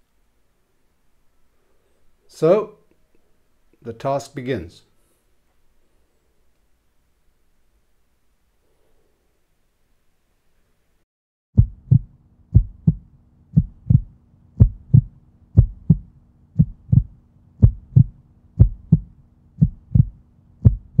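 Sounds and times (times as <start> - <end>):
faint low hum: 11.6 - 21.0
heartbeat thumps: 11.6 - 21.0.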